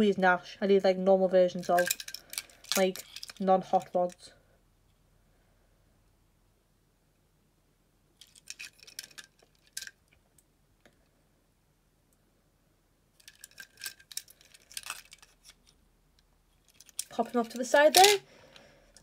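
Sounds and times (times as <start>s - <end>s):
toy cars clicking and rattling: 1.6s - 4.2s, 8.2s - 10.0s, 13.2s - 15.8s, 16.6s - 18.2s.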